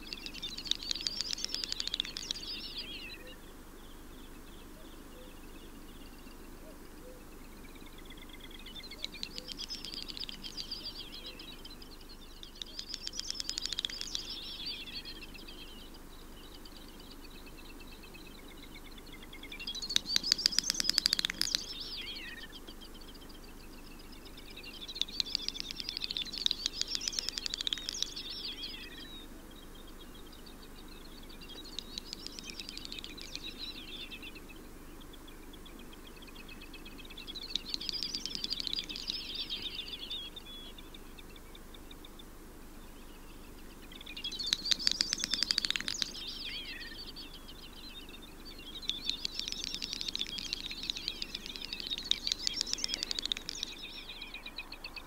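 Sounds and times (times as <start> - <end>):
bird song of clicks and twitter: 0.0 - 55.0.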